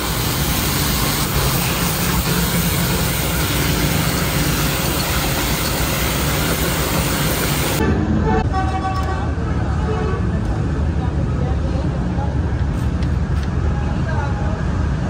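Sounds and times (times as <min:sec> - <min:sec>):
pressure washer water jet hissing: 0:00.0 - 0:07.8
pump motor humming: 0:00.0 - 0:07.8.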